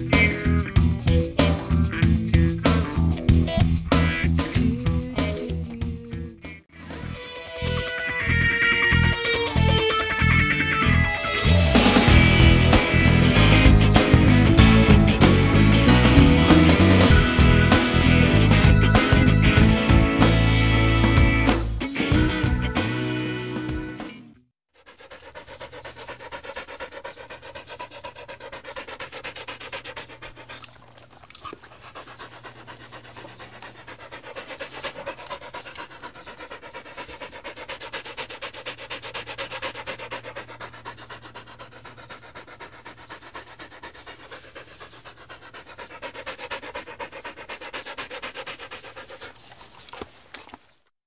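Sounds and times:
dog panting: 8.0s - 22.6s, 24.7s - 50.8s.

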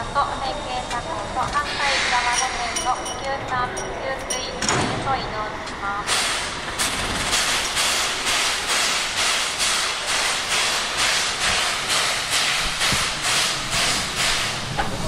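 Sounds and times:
steam locomotive puffing hiss: 1.6s - 2.7s, 6.1s - 6.6s, 7.3s - 15.0s.

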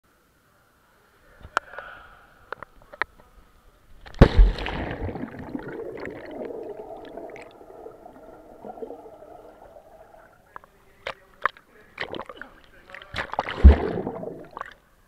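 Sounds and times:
splash into water: 4.2s - 10.3s, 12.0s - 14.8s
underwater air bubbles gurgling: 4.3s - 10.6s, 13.3s - 14.8s.

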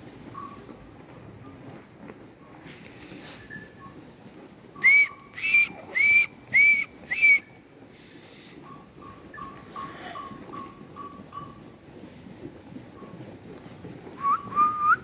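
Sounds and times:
person whistling short notes: 4.8s - 7.5s, 14.2s - 15.0s.

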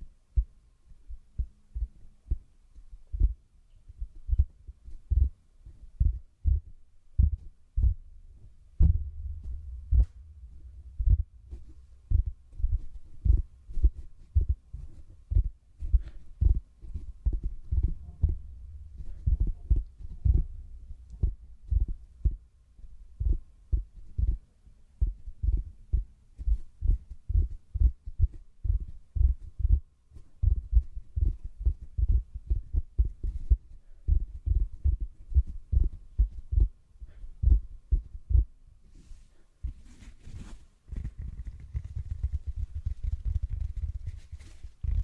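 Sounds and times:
sponge rubbing on microphone: 38.9s - 45.0s.

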